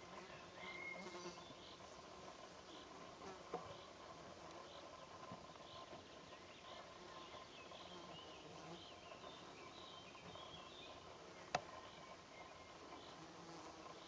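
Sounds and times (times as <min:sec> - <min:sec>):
distant small birds chirping: 0:00.0 - 0:14.0.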